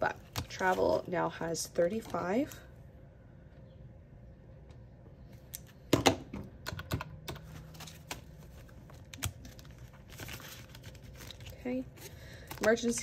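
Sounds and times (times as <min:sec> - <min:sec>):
binder pages clicking and rustling: 0:06.8 - 0:13.0.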